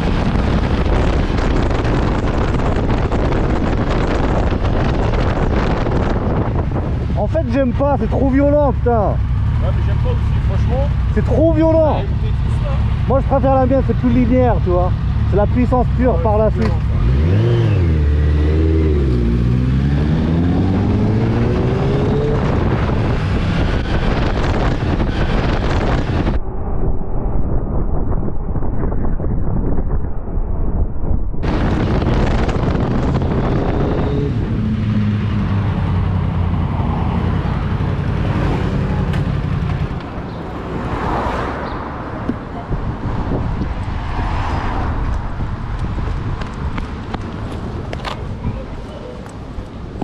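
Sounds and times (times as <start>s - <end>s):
wind rush: 0.0s - 50.0s
motorcycle engine revving: 14.3s - 26.4s.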